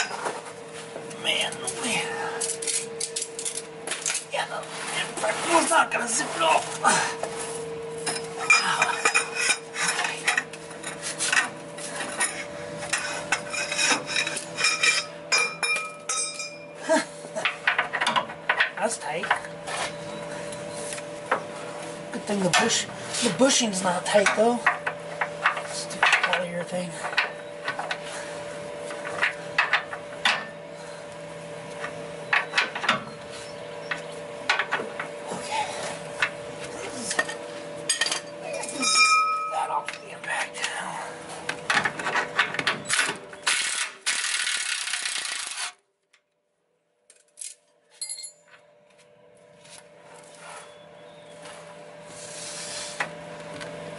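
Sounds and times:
steady hum: 0.0s - 45.9s, 46.5s - 53.9s
metal tools clinking: 2.4s - 4.3s, 8.0s - 11.4s, 12.0s - 16.7s, 37.0s - 40.1s, 47.1s - 48.5s.

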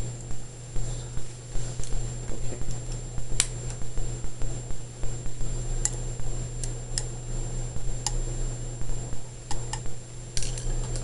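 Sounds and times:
faint high whine: 0.0s - 11.0s
steady low hum: 0.0s - 11.0s.

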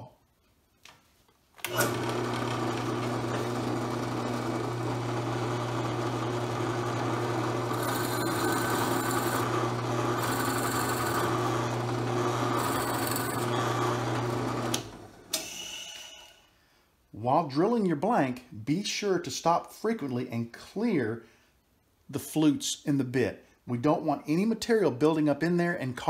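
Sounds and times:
drill press running: 1.6s - 16.4s
drill bit cutting wood hiss: 7.6s - 14.2s.

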